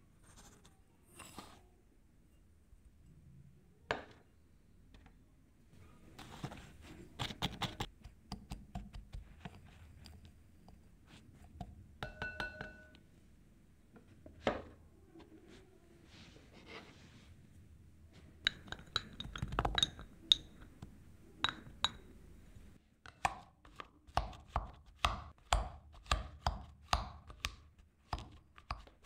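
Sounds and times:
glass ringing: 12.0 - 13.0
whisk clinking in glass cup: 12.0 - 13.0.

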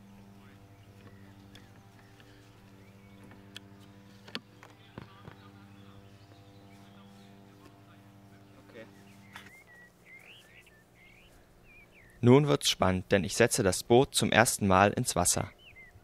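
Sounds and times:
steady low hum: 0.0 - 16.0
faint bird chirps: 4.6 - 12.3.

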